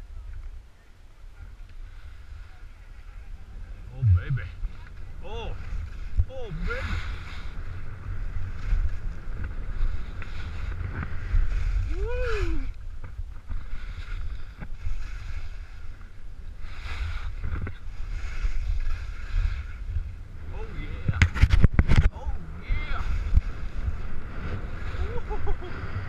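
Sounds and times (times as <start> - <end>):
wind rumble on microphone: 0.0 - 26.0
skis scraping over snow: 6.7 - 11.9, 13.6 - 19.8.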